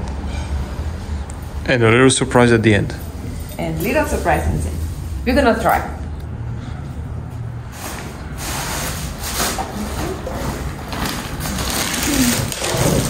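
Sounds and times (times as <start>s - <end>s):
plastic bag rustling: 7.7s - 13.0s.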